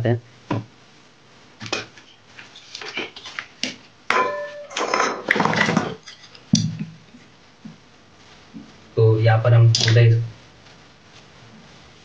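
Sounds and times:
ringing metal clang: 4.1 - 5.3.

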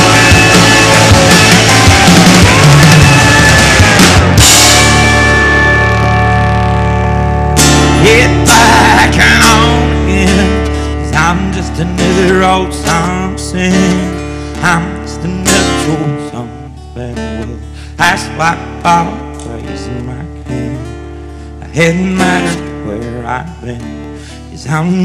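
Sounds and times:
live band playing: 0.0 - 16.1
strummed acoustic guitar: 0.0 - 25.0.

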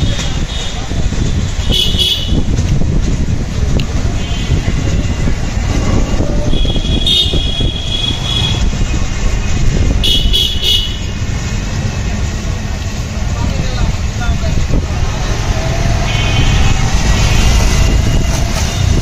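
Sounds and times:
traffic rumble and road noise: 0.0 - 19.0
high-pitched vehicle horns: 1.7 - 2.5, 6.4 - 8.8, 10.0 - 11.2, 16.0 - 19.0.

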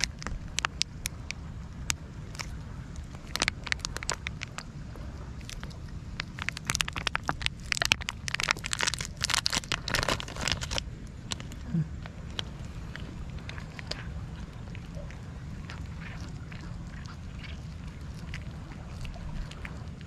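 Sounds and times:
plastic pouch crackling: 0.0 - 1.0, 3.2 - 4.6, 5.5 - 11.6
cat licking and chewing: 0.0 - 20.0.

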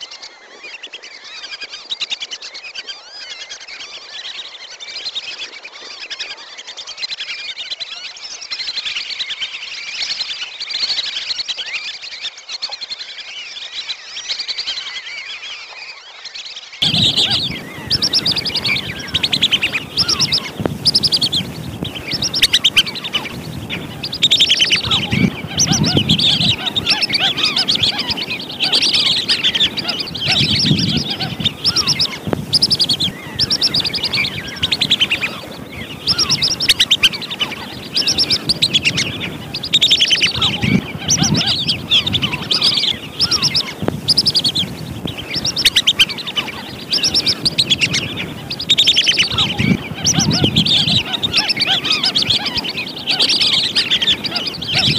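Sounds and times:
whistling ducks calling: 16.8 - 54.9.

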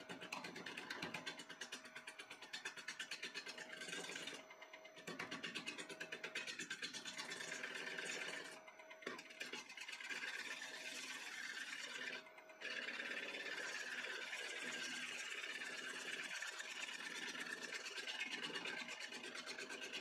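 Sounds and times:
lathe tool cutting wood: 9.9 - 20.0.

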